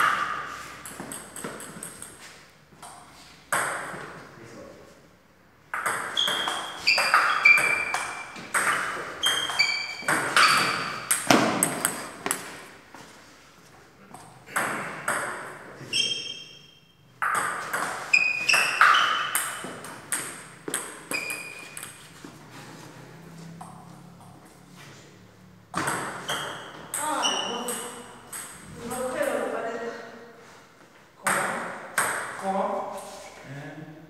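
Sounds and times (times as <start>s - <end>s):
table tennis ball hits: 0.0s - 4.2s, 5.6s - 12.8s, 14.2s - 16.5s, 17.2s - 22.0s, 25.7s - 29.4s, 31.2s - 32.4s.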